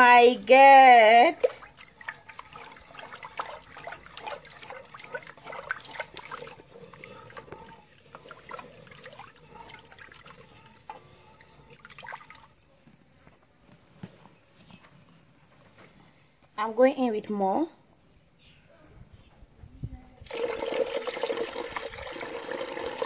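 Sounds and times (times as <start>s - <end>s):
spatula sloshing thick soup: 1.3s - 12.9s.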